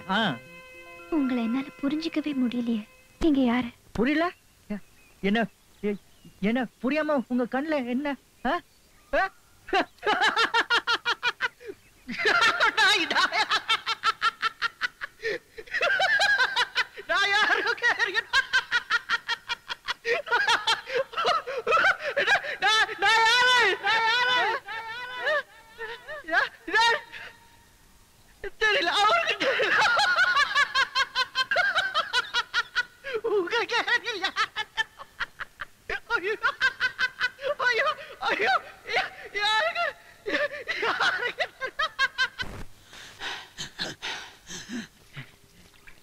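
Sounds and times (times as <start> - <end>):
person laughing: 10.0 - 27.3, 28.4 - 42.6, 43.2 - 45.3.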